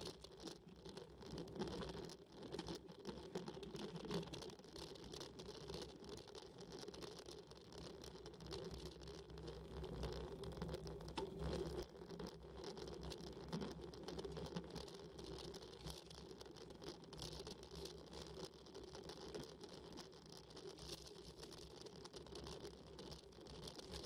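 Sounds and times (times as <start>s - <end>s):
bicycle tyre rumble: 7.8s - 16.3s.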